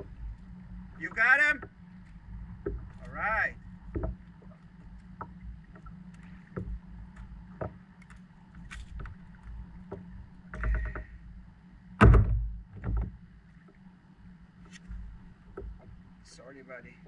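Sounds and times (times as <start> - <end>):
loud thump: 12.0 - 13.0.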